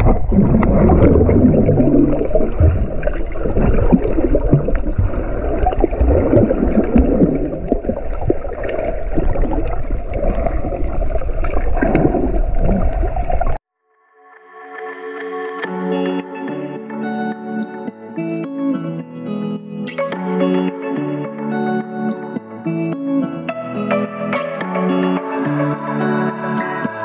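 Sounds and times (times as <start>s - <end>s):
muffled underwater rushing water: 0.0s - 13.6s
water bubbling and gurgling: 0.0s - 13.6s.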